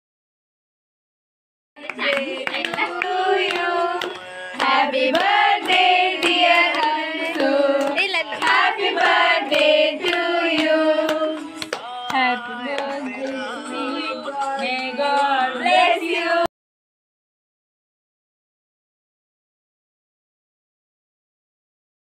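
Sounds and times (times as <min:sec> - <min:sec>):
person singing: 0:01.8 - 0:16.5.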